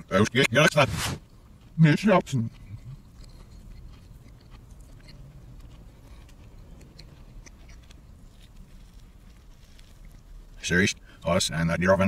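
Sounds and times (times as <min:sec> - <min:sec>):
person chewing: 0:00.0 - 0:11.3
steady low hum: 0:00.0 - 0:12.0
wet mouth clicks: 0:02.3 - 0:08.6.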